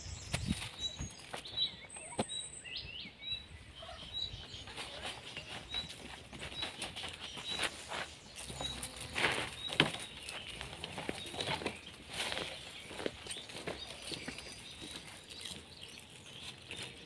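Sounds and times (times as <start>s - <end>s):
small bird chirping: 0.0s - 17.0s
leaves rustling and crackling: 4.4s - 17.0s.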